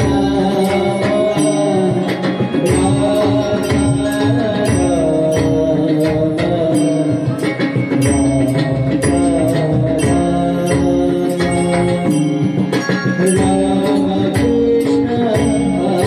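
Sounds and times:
harmonium sustained notes: 11.6 - 15.0.

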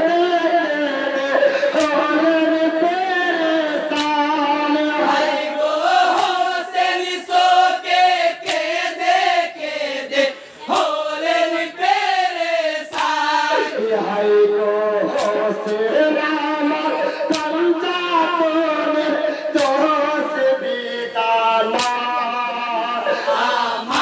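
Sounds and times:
man singing into a microphone: 0.0 - 5.6, 11.5 - 24.0
voices chanting along: 0.0 - 24.0.

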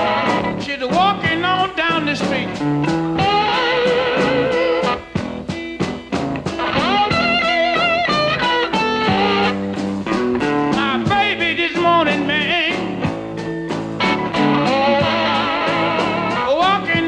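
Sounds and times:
electric slide guitar solo: 0.0 - 0.7, 2.5 - 10.9, 12.8 - 17.0
drum kit: 0.0 - 17.0
second guitar: 0.0 - 17.0.

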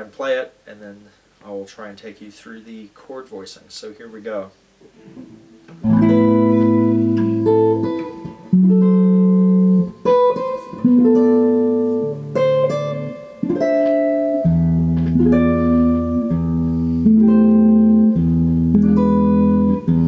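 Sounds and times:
electric guitar jazz chords: 4.8 - 20.0.

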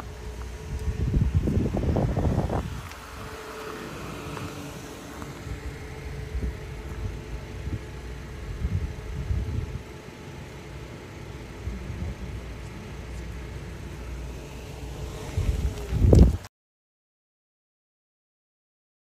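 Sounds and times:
wind buffeting microphone: 0.0 - 10.2, 14.9 - 16.5
faint steady hum: 0.0 - 16.5.

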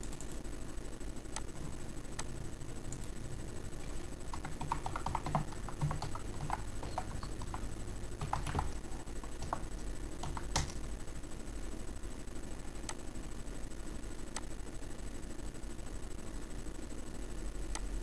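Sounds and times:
steady low hum: 0.0 - 18.0
keyboard typing: 3.8 - 10.9.

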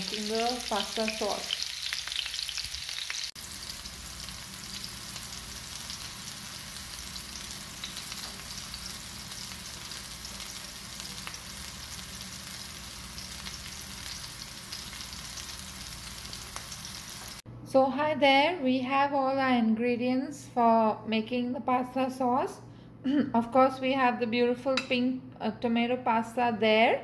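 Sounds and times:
meatballs sizzling in oil: 0.0 - 17.4.

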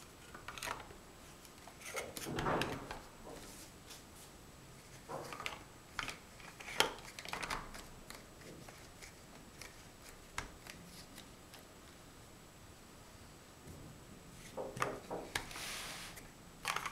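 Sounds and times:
plastic blocks clacking: 16.6 - 16.9.

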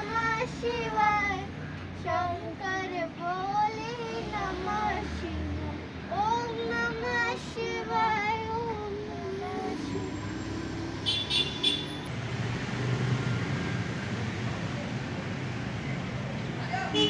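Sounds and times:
child singing: 0.0 - 10.2
street traffic hum: 0.0 - 17.0.

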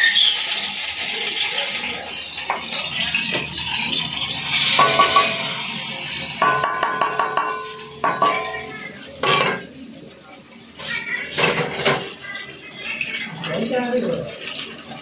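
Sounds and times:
metal pots clanking: 2.2 - 9.9, 11.3 - 12.2.

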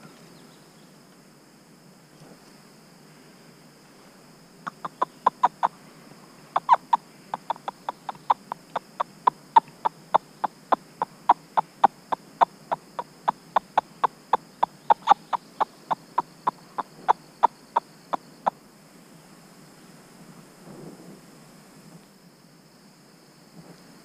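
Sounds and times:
squirrel barking: 4.7 - 5.7, 6.5 - 18.5.

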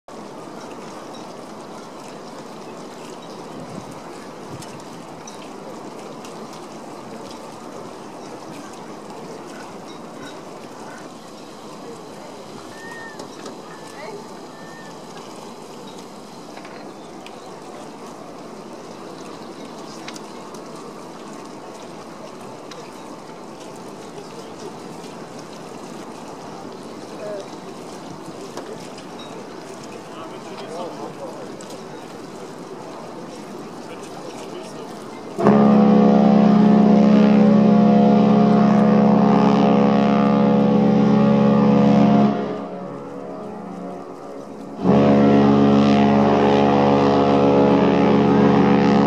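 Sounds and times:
rushing water: 0.0 - 49.0
wind: 0.0 - 49.0
ship horn low blast: 35.3 - 49.0.

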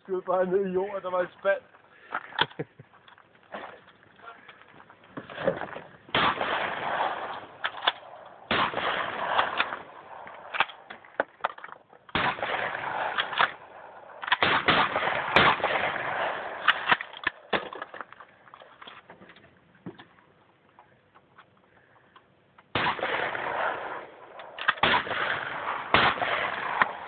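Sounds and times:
shotgun blasts: 5.3 - 10.9, 12.1 - 17.8, 22.7 - 27.0.

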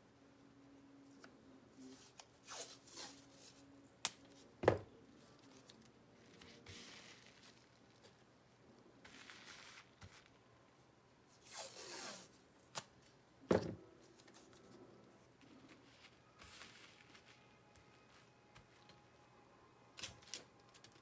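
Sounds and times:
hands rustling tape: 5.1 - 10.6, 14.0 - 19.2.

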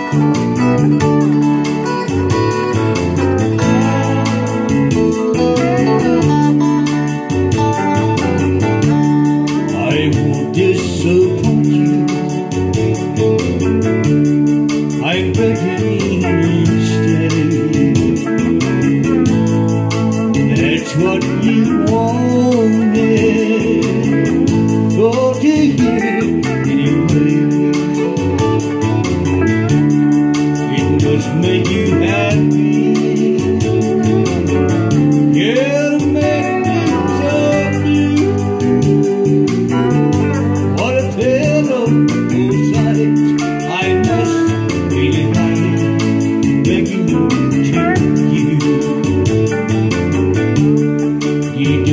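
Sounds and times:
electric guitar: 0.0 - 51.9
organ keyboard: 0.0 - 51.9
pedal steel guitar: 0.0 - 51.9.

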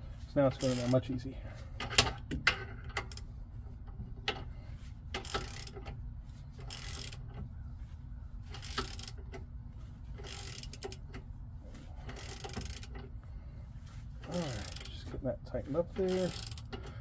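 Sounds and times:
ratchet wrench clicking: 0.5 - 1.0, 1.8 - 3.3, 5.1 - 6.0, 6.6 - 7.4, 8.5 - 9.5, 10.1 - 11.2, 12.0 - 13.1, 14.3 - 15.1, 15.9 - 17.0.

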